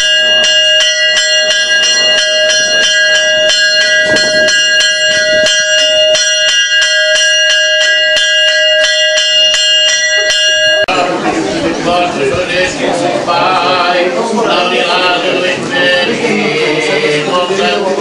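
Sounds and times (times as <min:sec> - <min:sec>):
bell ringing rapidly: 0:00.0 - 0:11.1.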